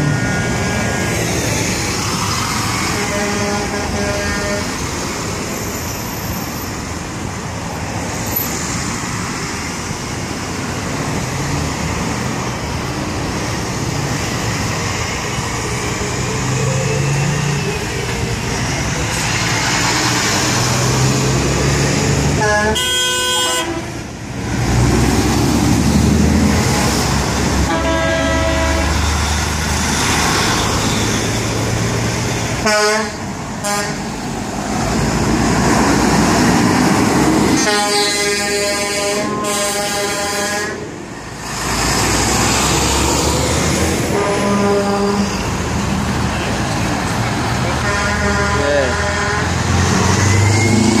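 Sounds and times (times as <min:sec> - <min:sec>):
heavy trucks driving past: 0:00.0 - 0:51.0
truck air horns blowing: 0:02.7 - 0:04.8, 0:22.3 - 0:24.0, 0:26.6 - 0:29.0, 0:32.6 - 0:34.1, 0:37.5 - 0:40.9, 0:44.0 - 0:45.5, 0:47.6 - 0:51.0.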